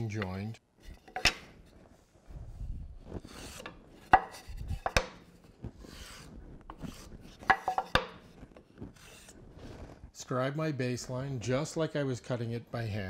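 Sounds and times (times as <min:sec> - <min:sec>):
marking gauge scraping wood: 0:03.2 - 0:05.2, 0:05.8 - 0:09.9.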